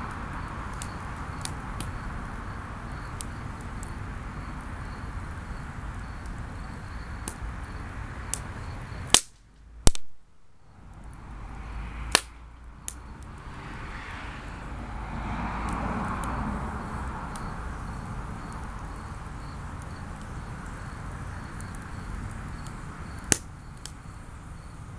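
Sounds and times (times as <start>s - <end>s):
fire rushing: 0.0s - 24.9s
wood crackling and popping: 3.1s - 10.3s, 15.6s - 24.2s.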